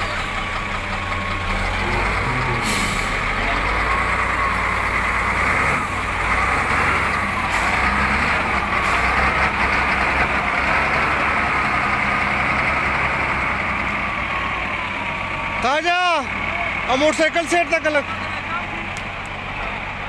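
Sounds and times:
heavy diesel engine running: 0:00.0 - 0:20.0.

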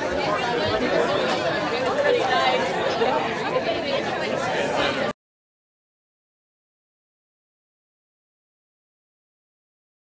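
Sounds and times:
crowd chatter: 0:00.0 - 0:05.2.

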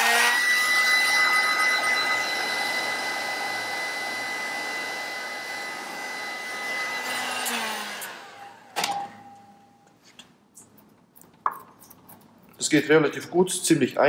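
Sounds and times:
fan winding down: 0:00.0 - 0:08.9
heat gun whining: 0:00.0 - 0:09.5.

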